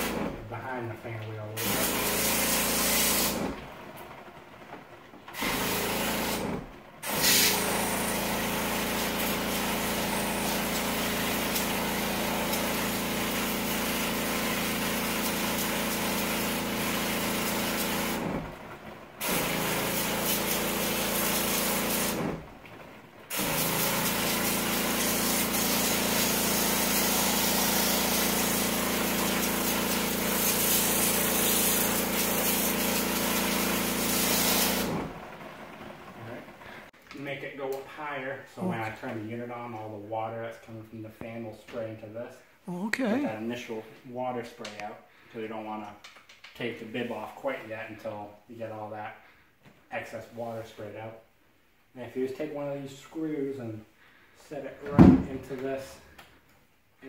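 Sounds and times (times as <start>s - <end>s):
pressure washer pump running: 0.0s - 0.4s, 1.6s - 3.7s, 5.3s - 22.6s, 23.3s - 36.8s
water spraying hiss: 23.3s - 34.9s.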